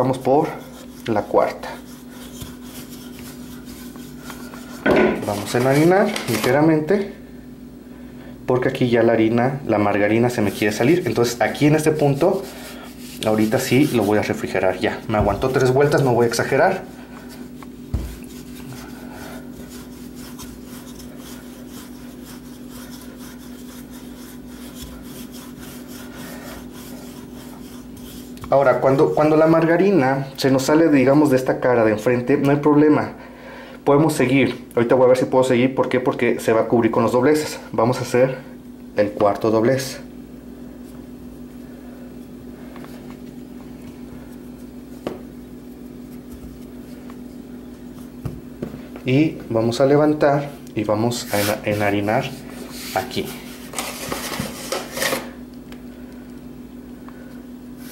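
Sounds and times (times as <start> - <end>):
rolling pin rubbing over dough: 0.0 - 6.8, 9.9 - 31.4, 40.7 - 48.2, 51.1 - 55.3
steady low hum: 0.0 - 57.9.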